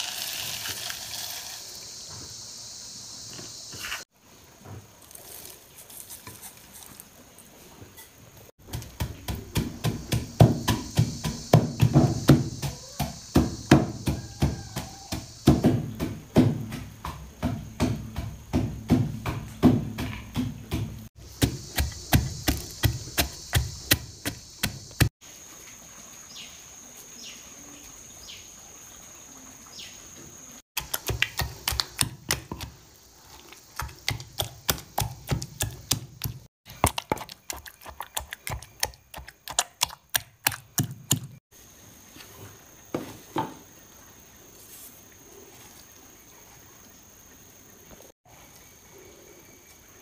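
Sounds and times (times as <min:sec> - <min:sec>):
light scrapes and knocks in mortar: 0:03.7 - 0:04.1, 0:05.0 - 0:08.2, 0:30.8 - 0:41.3
pestle pounding in a mortar: 0:08.6 - 0:25.1, 0:30.8 - 0:32.8, 0:33.7 - 0:41.4.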